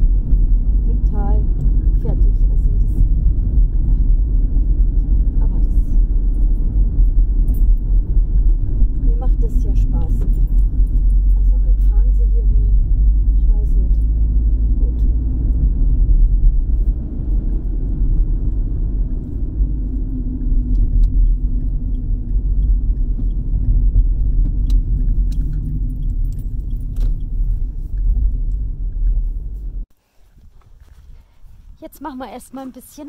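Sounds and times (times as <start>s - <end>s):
car engine and road rumble: 0.0s - 33.0s
light clicks and rattles: 6.2s - 14.1s, 20.3s - 29.3s.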